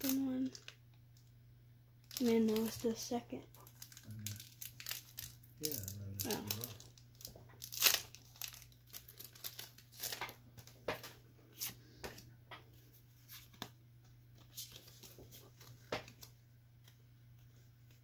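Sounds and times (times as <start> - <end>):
foil wrapper crinkling and tearing: 0.0 - 0.8, 2.0 - 10.4
cards being handled: 3.7 - 12.3.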